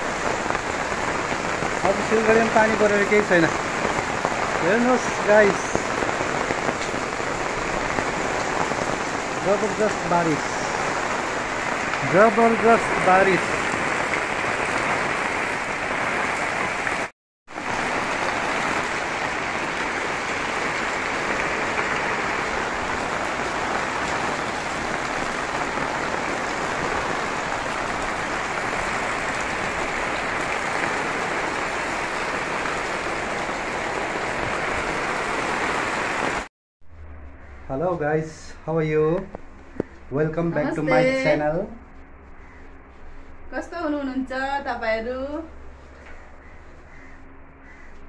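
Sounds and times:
heavy rain on concrete: 0.0s - 36.5s, 38.2s - 41.8s
roof runoff splashing: 0.0s - 36.5s.

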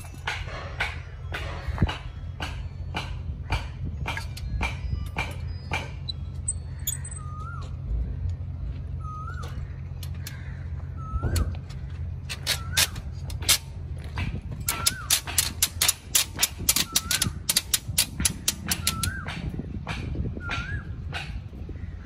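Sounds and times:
steady low rumble: 0.0s - 22.0s
pliers and wire clicking on rebar: 2.4s - 7.4s, 11.3s - 20.1s.

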